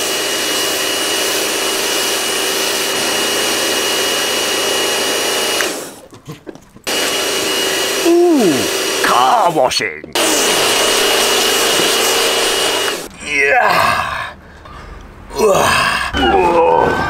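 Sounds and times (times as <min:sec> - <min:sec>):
pressure washer whine and spray: 0:00.0 - 0:06.0, 0:06.9 - 0:09.6, 0:10.2 - 0:13.1.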